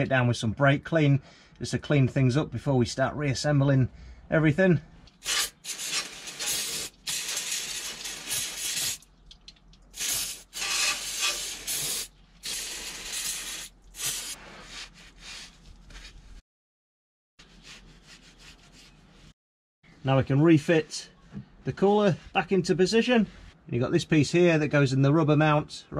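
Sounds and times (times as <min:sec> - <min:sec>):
aerosol can spraying: 0:05.2 - 0:09.0, 0:10.0 - 0:14.4.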